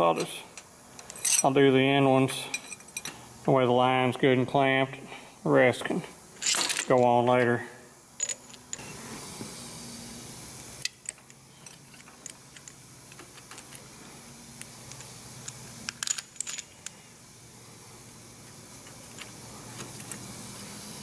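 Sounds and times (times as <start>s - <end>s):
steady hiss: 0.0s - 21.0s
metallic clicks of engine parts: 0.2s - 1.5s, 10.8s - 13.9s, 14.6s - 17.0s.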